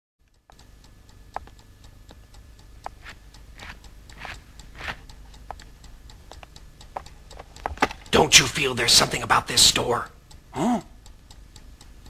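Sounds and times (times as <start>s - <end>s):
rapid even ticking: 0.2s - 12.0s.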